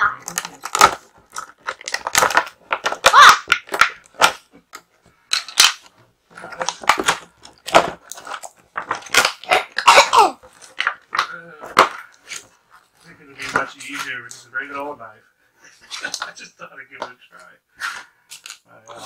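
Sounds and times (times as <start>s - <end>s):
plastic packaging cracking: 0.0s - 12.4s.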